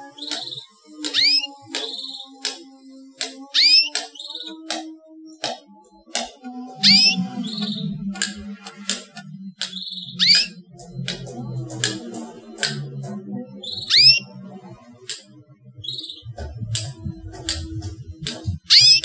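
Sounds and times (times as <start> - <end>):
canary chirps sweeping upward: 0.0 - 2.6, 3.4 - 4.7, 6.7 - 10.7, 13.6 - 14.4, 15.8 - 17.6, 18.6 - 19.0
sharp clicks: 0.0 - 14.3, 15.0 - 19.0
short high bird notes: 1.1 - 1.5, 6.8 - 7.9, 9.8 - 10.6.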